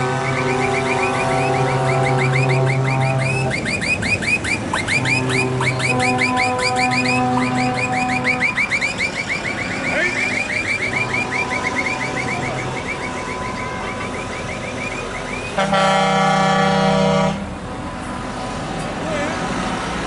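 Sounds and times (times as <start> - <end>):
truck air horn blast: 0.0 - 3.6, 4.9 - 8.6, 11.0 - 14.3, 15.5 - 17.6
electronic warble of rising chirps: 0.2 - 15.5.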